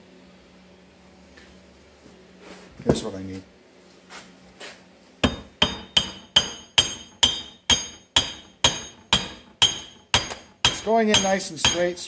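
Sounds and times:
hammer tapping metal tube: 0:05.2 - 0:12.0.

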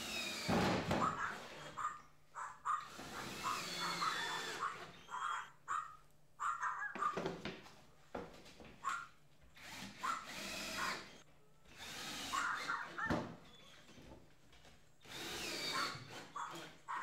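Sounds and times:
cordless drill running in bursts: 0:00.0 - 0:01.7, 0:02.9 - 0:04.6, 0:09.6 - 0:12.7, 0:15.0 - 0:16.8.

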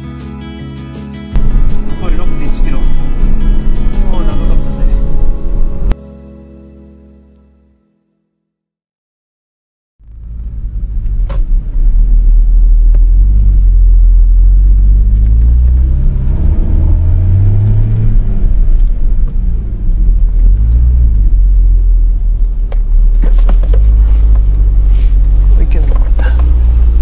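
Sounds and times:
road rumble: 0:01.3 - 0:06.0, 0:10.0 - 0:27.0
car engine revving: 0:01.4 - 0:06.0, 0:10.0 - 0:27.0.

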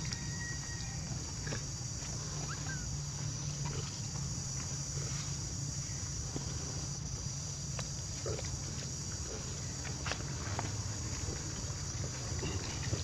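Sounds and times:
faint squeaks and ticks: 0:00.0 - 0:04.2.

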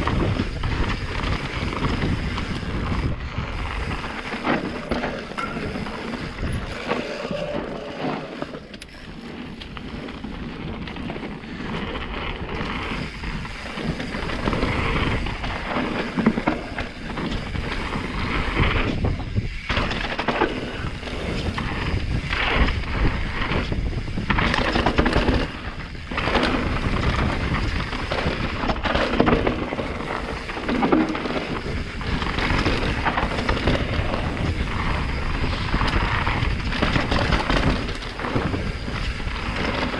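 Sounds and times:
bike tyres rolling over dirt: 0:00.0 - 0:39.9
wind rumble on microphone: 0:00.0 - 0:39.9
bike frame knocks and rattles: 0:03.8 - 0:06.9, 0:18.6 - 0:39.9.

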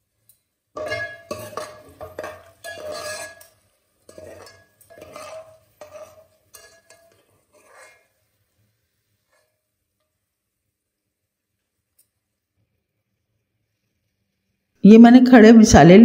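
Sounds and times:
metal ladle scraping a pot: 0:00.8 - 0:08.4, 0:09.2 - 0:09.6.

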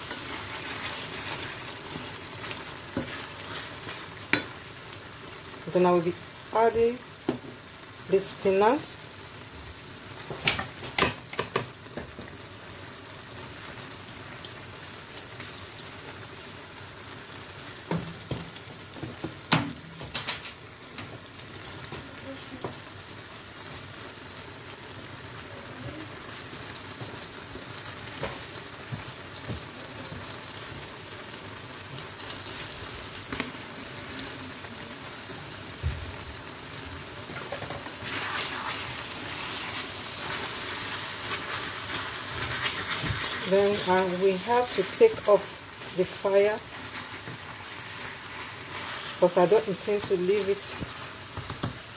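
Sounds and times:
wooden spoon scraping a pot: 0:00.0 - 0:04.5, 0:37.4 - 0:45.5
sauce sizzling in a pot: 0:00.0 - 0:51.9.

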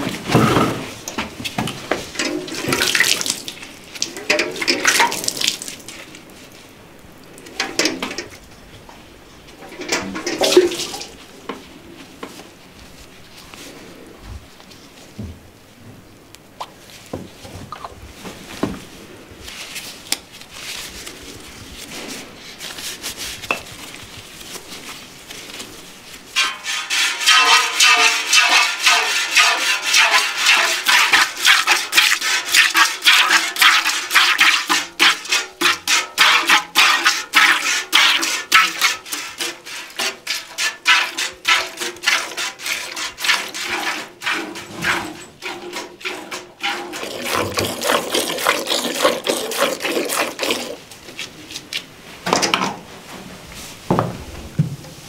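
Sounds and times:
milk squirting into metal pail: 0:02.1 - 0:06.0, 0:09.7 - 0:11.2, 0:26.4 - 0:50.8.

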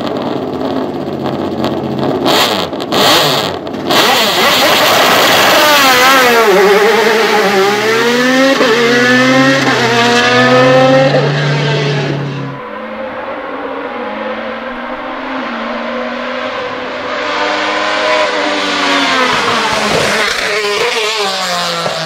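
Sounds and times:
race car engine revving and upshifting: 0:00.1 - 0:22.0.

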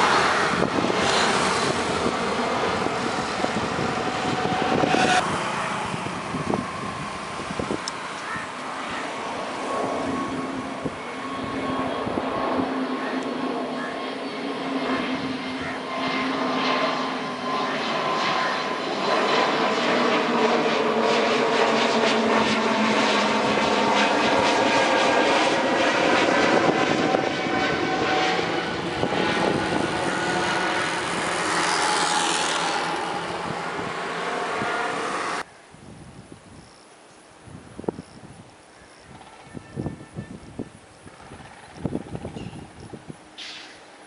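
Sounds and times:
jet engines at climb power: 0:00.0 - 0:44.0.

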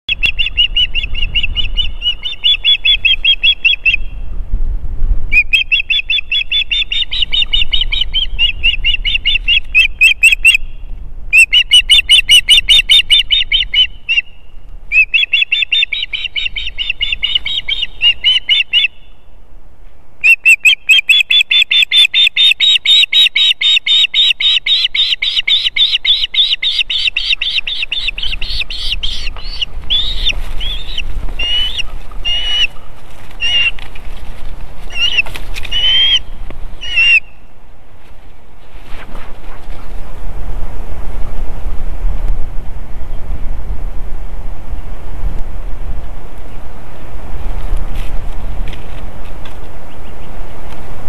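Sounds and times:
osprey whistled chirps: 0:05.4 - 0:10.8, 0:11.4 - 0:19.2.

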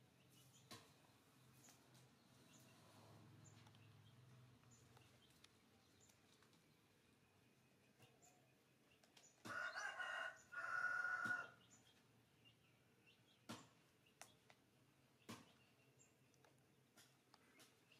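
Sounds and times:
rooster crowing: 0:09.5 - 0:11.6.

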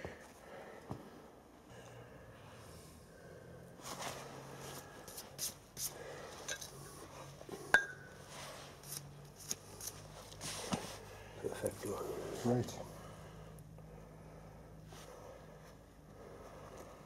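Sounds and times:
sharp ringing metallic clink: 0:07.7 - 0:08.1.

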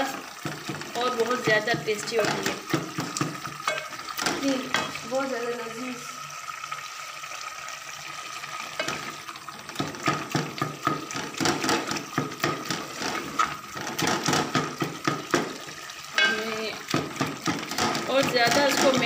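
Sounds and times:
simmering liquid: 0:00.0 - 0:19.0
spoon scraping and knocking pot: 0:00.4 - 0:05.0, 0:08.8 - 0:19.0.

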